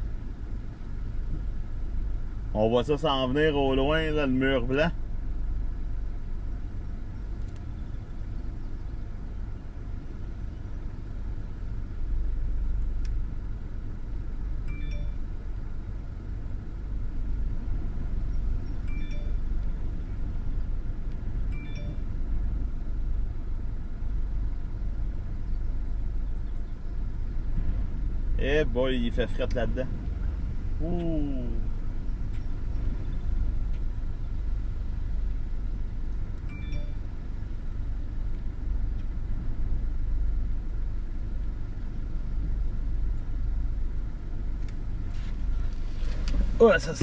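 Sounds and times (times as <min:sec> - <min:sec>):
gusty wind rumble on microphone: 0:22.2 - 0:30.9, 0:31.6 - 0:36.4.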